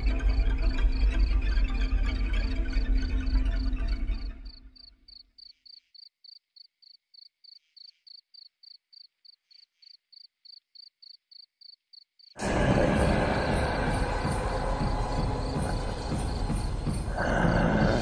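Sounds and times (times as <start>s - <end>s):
cricket chirping: 0.0s - 18.0s
sudden loud roar: 12.4s - 18.0s.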